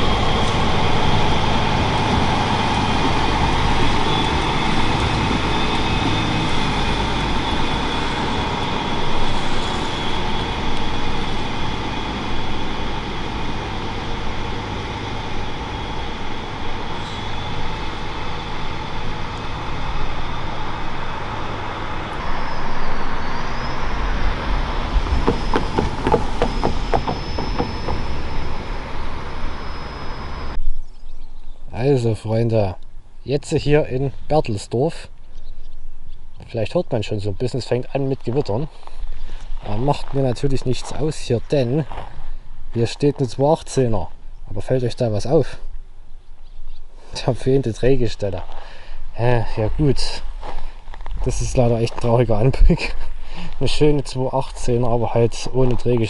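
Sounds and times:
tram passing: 0:00.0 - 0:30.6, 0:35.8 - 0:56.0
sharp clacks: 0:25.0 - 0:28.2.

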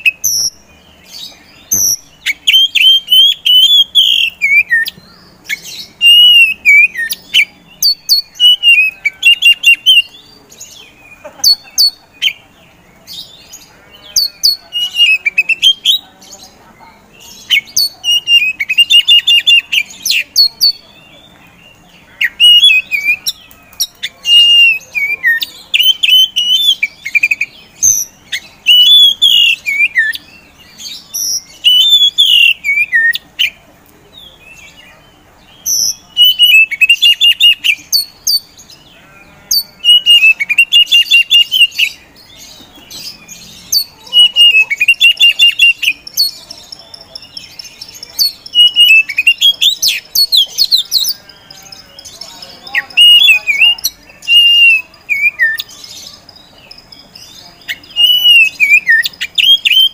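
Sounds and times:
bird singing chattering whistles: 0:00.0 - 0:12.4, 0:17.2 - 0:20.8, 0:21.7 - 0:33.6, 0:35.5 - 0:38.6, 0:39.5 - 0:52.1, 0:52.7 - 0:59.9.

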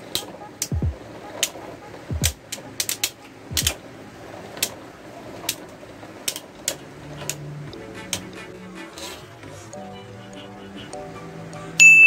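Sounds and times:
spinning tops clacking: 0:00.0 - 0:03.8.

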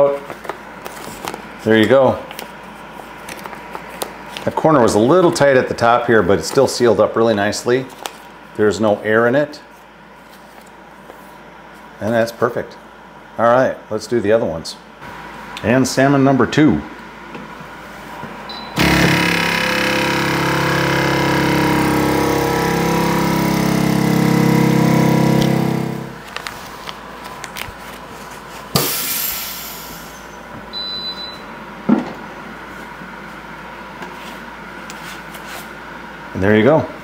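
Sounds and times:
vacuum sealer pump motor running: 0:18.5 - 0:27.0
short hiss of air: 0:28.8 - 0:30.3.

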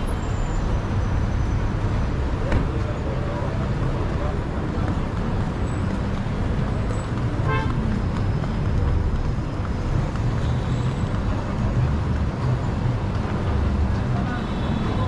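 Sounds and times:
city street traffic: 0:00.0 - 0:15.0
car horn toot: 0:07.4 - 0:07.8.

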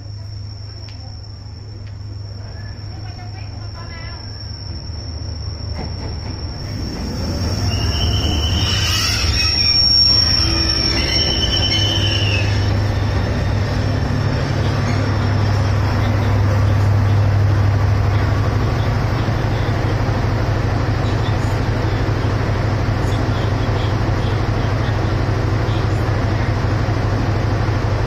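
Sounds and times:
diesel train drone: 0:00.0 - 0:28.0
train brake and wheel squeal: 0:04.2 - 0:13.2.

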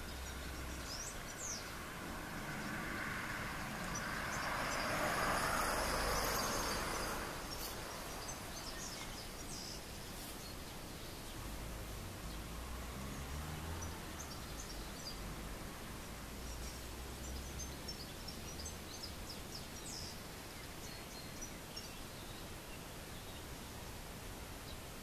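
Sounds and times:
broad rushing noise: 0:00.0 - 0:14.1.

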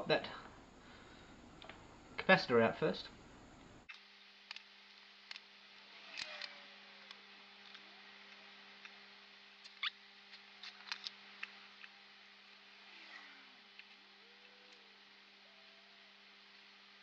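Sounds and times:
low electrical hum: 0:00.0 - 0:17.0
small tools clicking: 0:06.1 - 0:07.8, 0:09.6 - 0:12.0.

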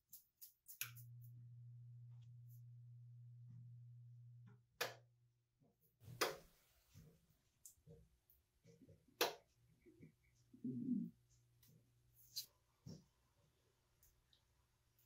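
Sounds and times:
low steady hum: 0:00.8 - 0:05.4.

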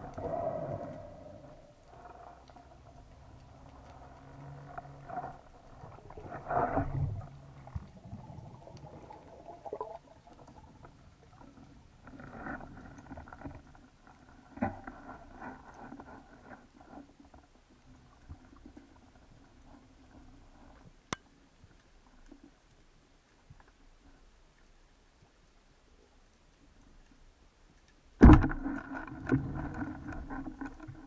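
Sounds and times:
muffled underwater rumble: 0:00.0 - 0:20.8.

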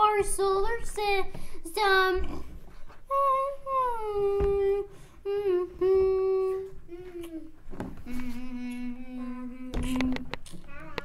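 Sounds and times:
child humming: 0:03.1 - 0:11.0.

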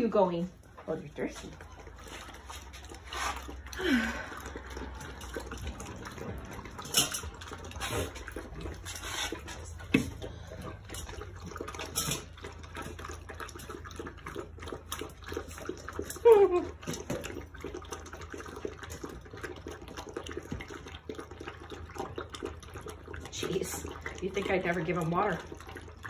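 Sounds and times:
puppies lapping water: 0:00.0 - 0:26.0
metal bowls knocking: 0:06.0 - 0:08.4
puppy whining: 0:15.9 - 0:17.0.

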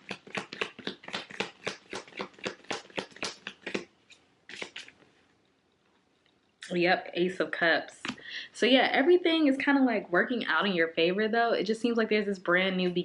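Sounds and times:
cards being shuffled: 0:00.0 - 0:05.2
card being drawn rustle: 0:01.4 - 0:05.2.

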